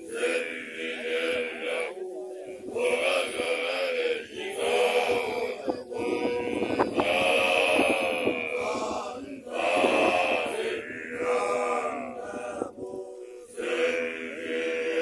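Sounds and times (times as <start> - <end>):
men chanting together: 0.0 - 15.0.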